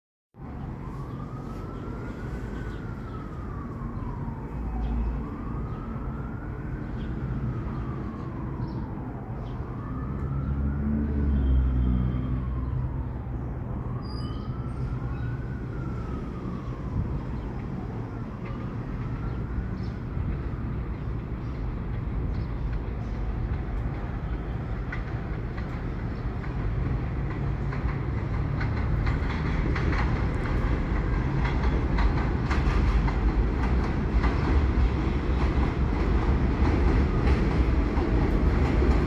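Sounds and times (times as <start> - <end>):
siren wailing: 0.4 - 20.9
low city rumble: 0.4 - 39.0.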